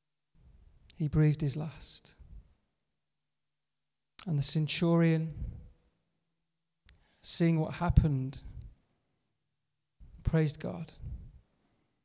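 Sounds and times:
man speaking: 0:04.2 - 0:05.6.

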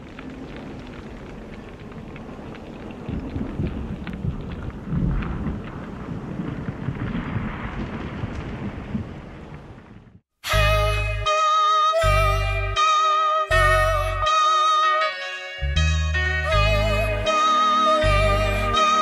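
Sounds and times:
rain hiss: 0:00.0 - 0:06.4
crackles: 0:00.0 - 0:10.2
thunder rolling: 0:00.0 - 0:10.2.

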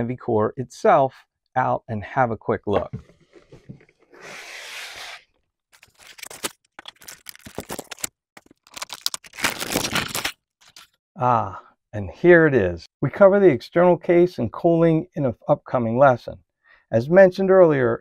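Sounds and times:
foam scraping cardboard box: 0:04.1 - 0:05.3
plastic bag crinkling: 0:05.8 - 0:10.9.

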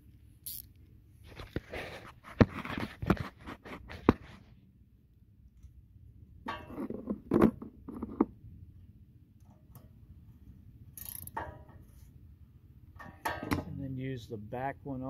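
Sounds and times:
wrench clinking on metal nuts: 0:11.0 - 0:11.6.

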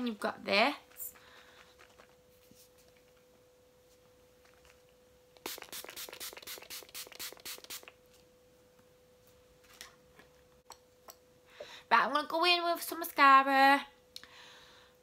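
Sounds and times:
mist bottle spraying: 0:05.4 - 0:08.0.

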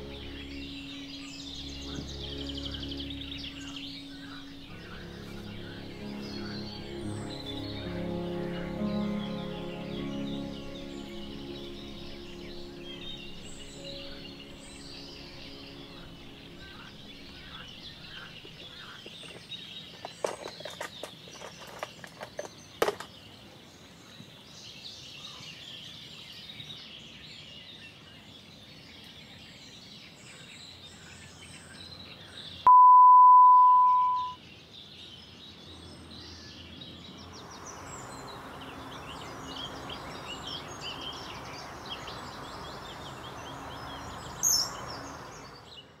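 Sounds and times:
small birds chirping: 0:00.0 - 0:46.0
loud electronic beep: 0:32.7 - 0:34.4.

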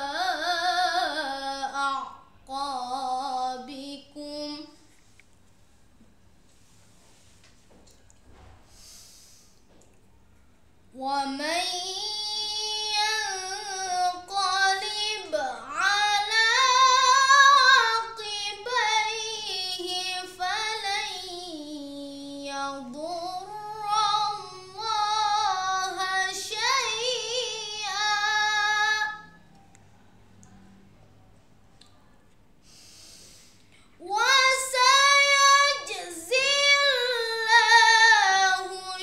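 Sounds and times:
boy chanting melodic recitation: 0:11.0 - 0:29.4.

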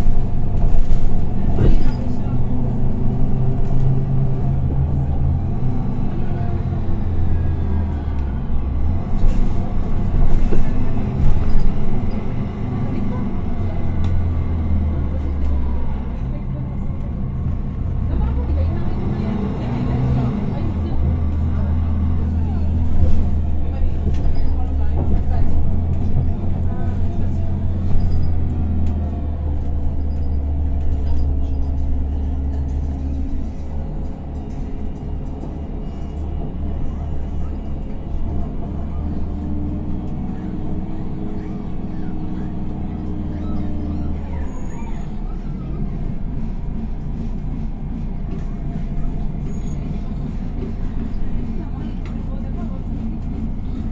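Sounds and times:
bus diesel engine drone: 0:00.0 - 0:53.9.

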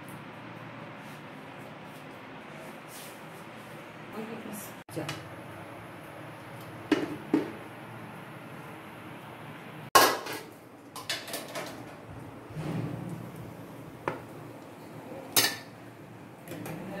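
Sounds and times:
metal cookware clanking: 0:10.0 - 0:13.4, 0:15.2 - 0:15.8.

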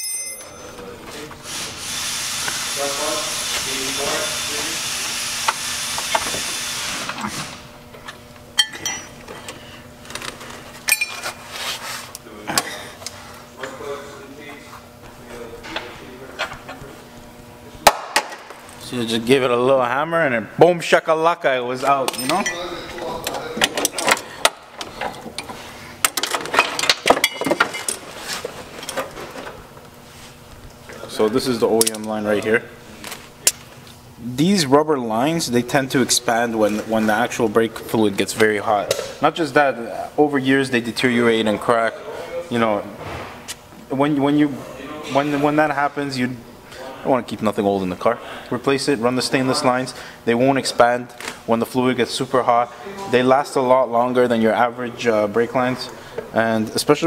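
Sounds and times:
metal tools clicking and clinking: 0:08.6 - 0:09.1, 0:10.8 - 0:11.3, 0:22.1 - 0:28.0, 0:31.8 - 0:32.2.

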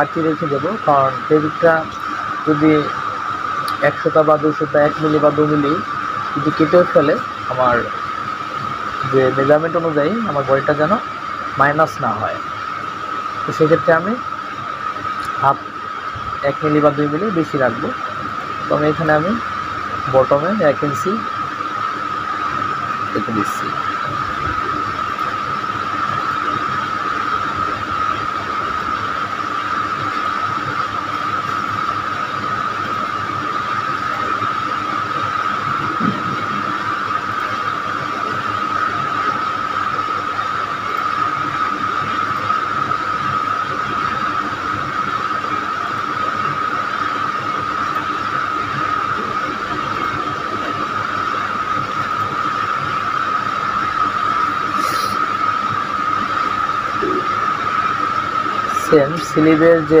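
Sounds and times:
steady background hiss: 0:00.0 - 0:08.0
high-pitched whine: 0:00.0 - 1:00.0.

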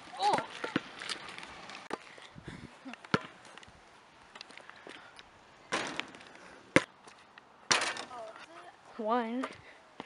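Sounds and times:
basketball thudding on pavement: 0:00.2 - 0:00.9, 0:03.1 - 0:03.4, 0:05.7 - 0:06.9.

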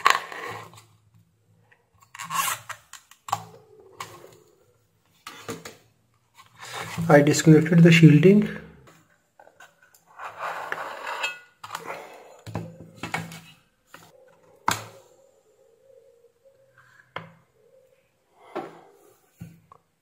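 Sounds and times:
rustling and scraping of parts: 0:05.0 - 0:07.5, 0:08.9 - 0:14.1.

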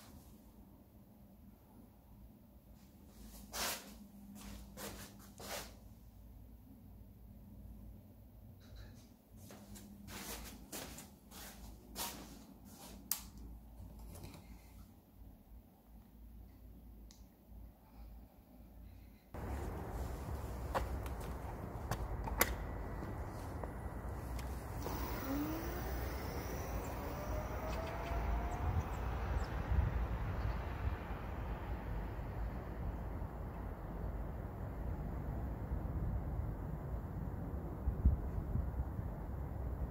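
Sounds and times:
low outdoor rumble: 0:13.4 - 0:39.9
electric scooter motor whining: 0:19.4 - 0:32.2.

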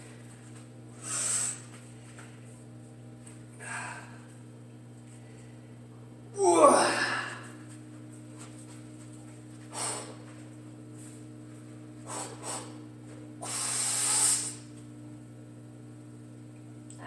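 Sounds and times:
steady low hum: 0:00.0 - 0:17.0
person breathing hard: 0:01.0 - 0:01.7, 0:03.6 - 0:04.3, 0:09.7 - 0:10.2, 0:12.0 - 0:12.8.

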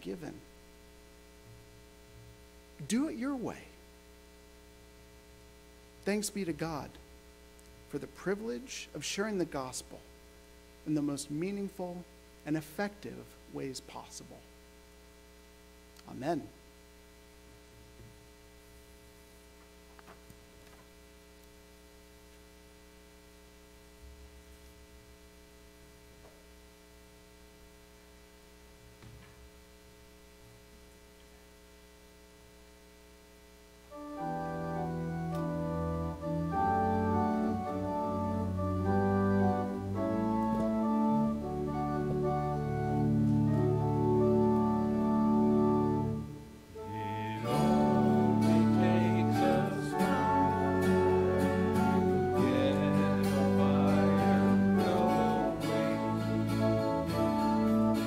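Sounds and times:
faint electrical hum: 0:00.0 - 0:58.0
electronic organ chords: 0:33.9 - 0:58.0.

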